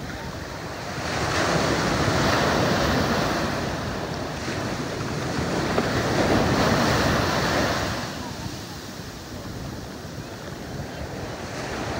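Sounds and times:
ocean surf breaking: 0.0 - 11.9
wind buffeting microphone: 0.0 - 11.9.

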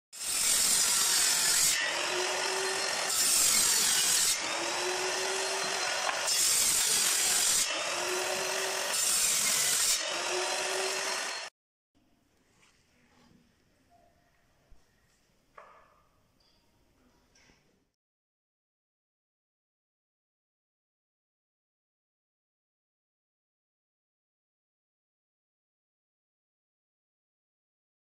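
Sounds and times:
table saw cutting board: 0.2 - 11.5.

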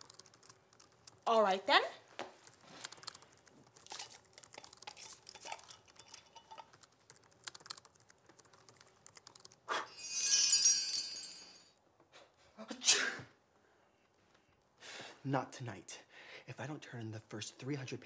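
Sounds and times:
bright glittering magic shimmer: 9.9 - 11.7.

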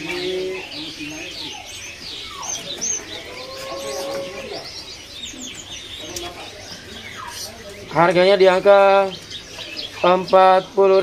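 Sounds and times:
songbirds chirping and whistling: 0.0 - 11.0.

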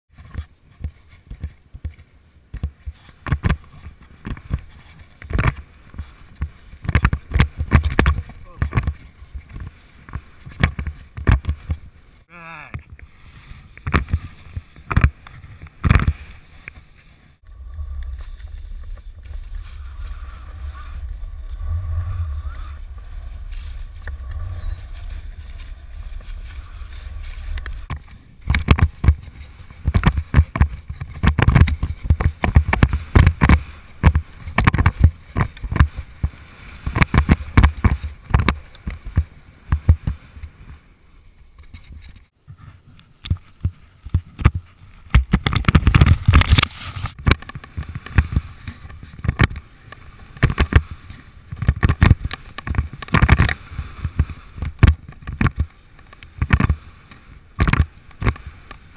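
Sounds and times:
skis running through snow: 0.2 - 12.3, 13.0 - 42.2, 43.5 - 58.9
wind buffeting microphone: 12.8 - 40.8.

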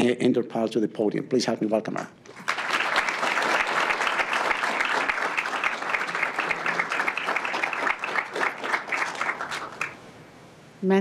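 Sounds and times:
audience applauding: 2.3 - 10.0.

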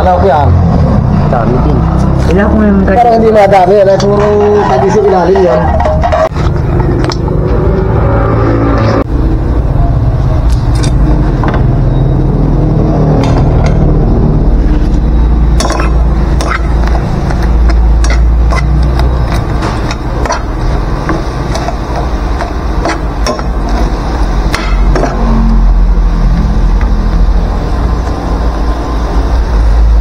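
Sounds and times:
metal spoon scraping frying pan: 4.0 - 6.4, 15.6 - 25.8
low rumble: 4.3 - 21.4.

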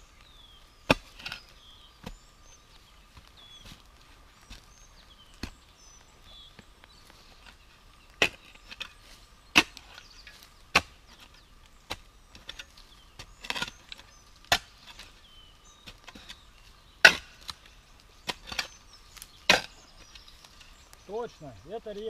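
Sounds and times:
shovel chopping into soil: 0.9 - 2.2, 8.2 - 15.1, 17.0 - 20.1
shovel scraping: 8.2 - 15.2, 15.8 - 20.7.

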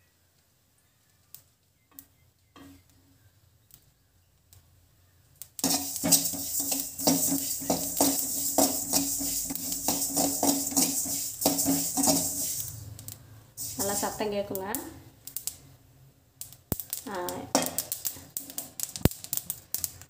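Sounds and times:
seeds popping in a pan: 3.6 - 15.7, 16.4 - 20.0
metal ladle scraping a pan: 5.6 - 12.8, 13.6 - 14.3.

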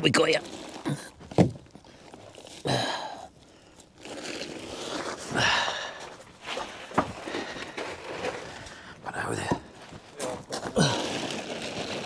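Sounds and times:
plastic tarpaulin rustling: 0.0 - 9.0, 9.6 - 12.0
footsteps on gravel: 4.7 - 12.0.

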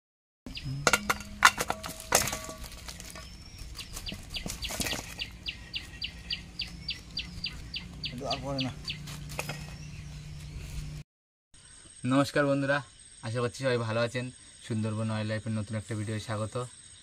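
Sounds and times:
bird chirping: 0.5 - 11.0.

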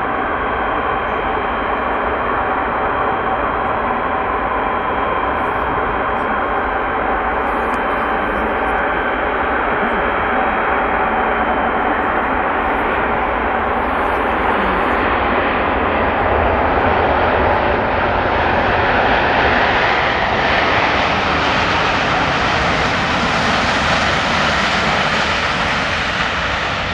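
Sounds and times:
jet engines roaring: 0.0 - 26.9.

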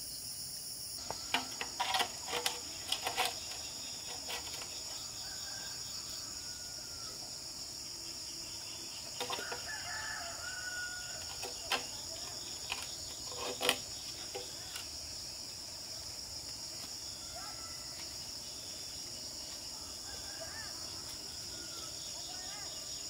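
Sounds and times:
crickets chirring: 0.0 - 23.0
rooster crowing: 5.0 - 7.4, 9.2 - 11.6, 17.2 - 18.0, 19.7 - 22.0.

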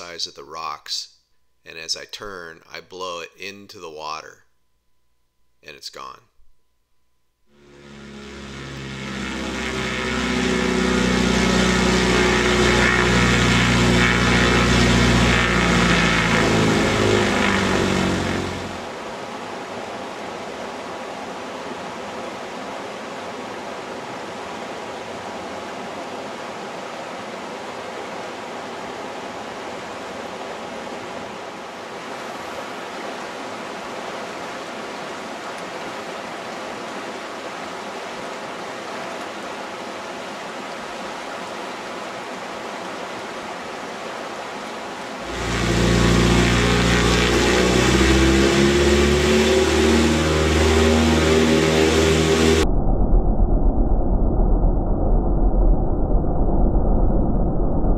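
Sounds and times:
propeller plane engine running: 7.5 - 20.2, 45.2 - 52.7
river rushing: 7.6 - 52.6.

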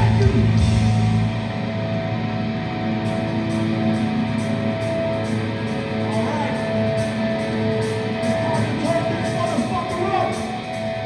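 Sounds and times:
drums and cymbals: 0.0 - 1.6
guitar chords: 0.0 - 11.0
live hardcore band playing: 0.0 - 11.0.

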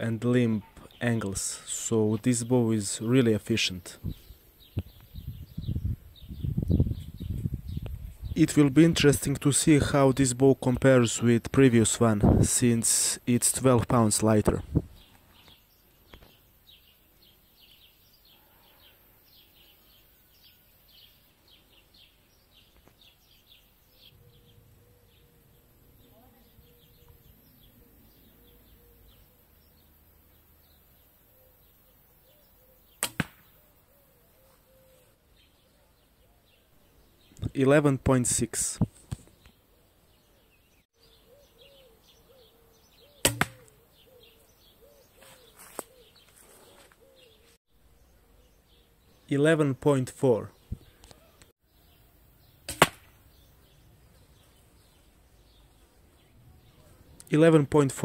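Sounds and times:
faint birdsong: 0.0 - 58.0
arrow striking target: 33.0 - 33.5, 43.2 - 43.7, 52.7 - 53.2
bowstring snapping: 33.0 - 33.5, 43.2 - 43.8, 52.7 - 53.2.

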